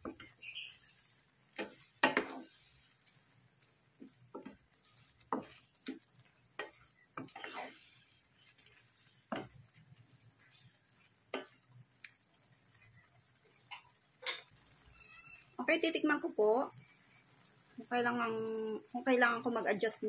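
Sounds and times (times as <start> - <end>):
wooden spatula tapping a pan: 0.0 - 0.5, 1.5 - 7.7, 8.4 - 12.3, 13.6 - 14.5.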